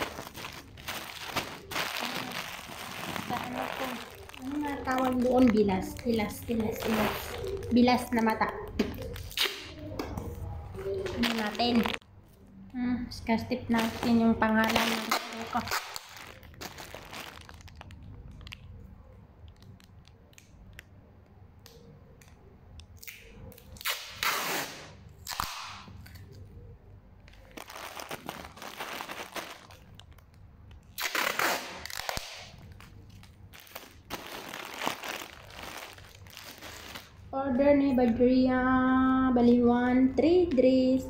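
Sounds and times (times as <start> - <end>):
loud ripping bursts: 0.0 - 5.5, 13.8 - 18.4, 23.8 - 25.9, 27.5 - 30.0, 30.9 - 37.2
packing tape being torn: 0.0 - 7.7, 9.0 - 9.9, 13.8 - 18.7, 19.4 - 20.9, 21.6 - 26.4, 27.3 - 37.2
plastic parcel crinkling: 0.0 - 9.9, 10.8 - 12.0, 13.6 - 20.8, 27.2 - 37.3.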